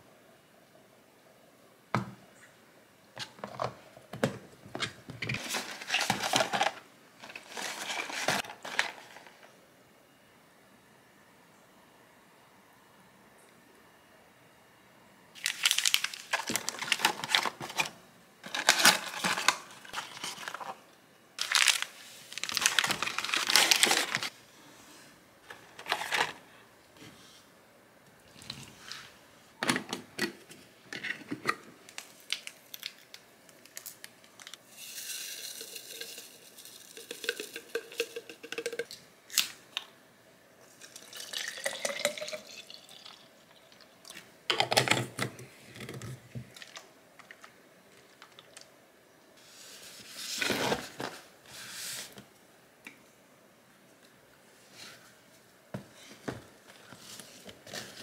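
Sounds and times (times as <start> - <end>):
plastic packaging crinkling and tearing: 5.3 - 9.4, 15.4 - 20.8, 21.4 - 24.3, 31.9 - 34.6
water pouring into bottle: 40.8 - 43.8.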